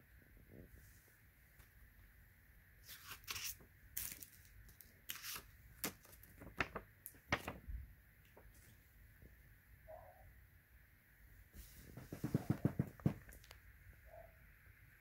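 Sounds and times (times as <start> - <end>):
paper rustling: 2.9 - 7.7, 11.6 - 13.5.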